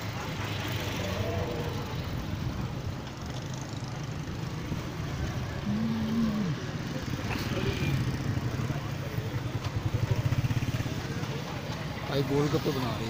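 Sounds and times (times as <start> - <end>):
engine and traffic rumble: 0.0 - 13.0.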